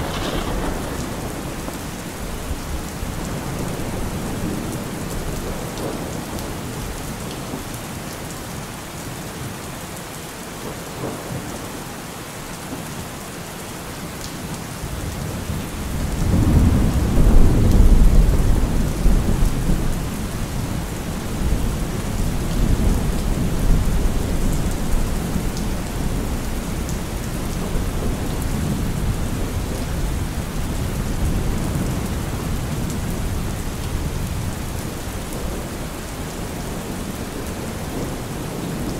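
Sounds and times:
thunder rumbling: 0.0s - 6.3s, 15.0s - 38.9s
steady rain: 0.0s - 38.9s.

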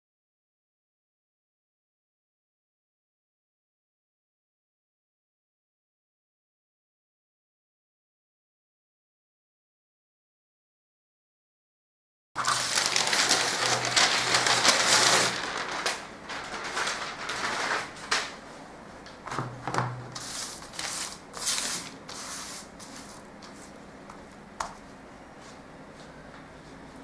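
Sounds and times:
stiff paper rustling and crackling: 12.4s - 18.4s, 20.2s - 23.2s.

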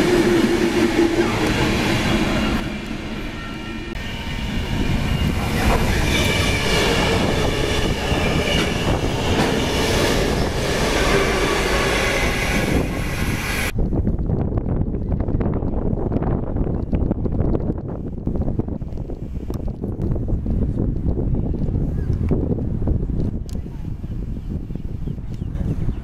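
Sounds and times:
diesel locomotive engines: 0.0s - 13.7s
freight train wagons rolling past: 0.0s - 13.7s
wheel-on-rail noise: 0.0s - 13.8s.

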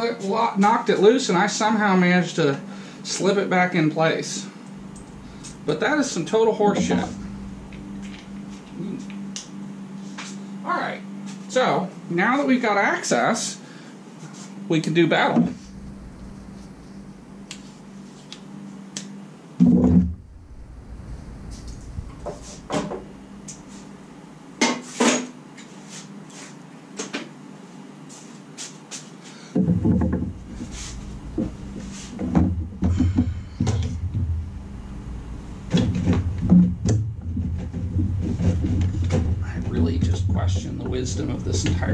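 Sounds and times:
heavy knocking and rubbing: 4.9s - 8.8s, 19.6s - 23.9s, 29.6s - 34.9s, 35.7s - 41.9s.

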